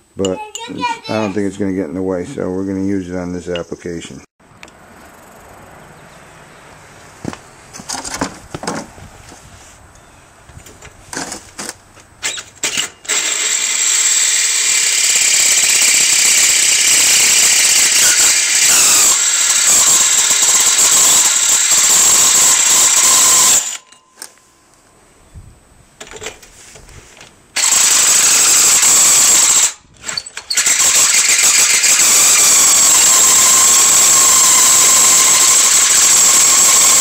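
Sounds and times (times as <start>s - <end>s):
hole saw screeching on metal: 12.2s - 24.0s, 27.6s - 37.0s.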